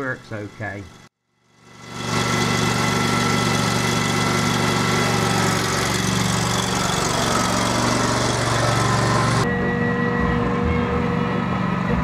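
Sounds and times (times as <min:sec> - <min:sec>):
garden tractor engine running: 0:00.0 - 0:09.5.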